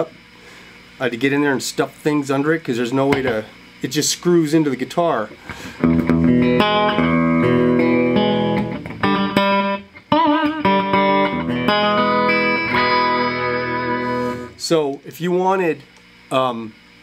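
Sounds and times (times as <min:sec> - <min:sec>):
electric guitar picked through amp: 0:05.4 - 0:14.9.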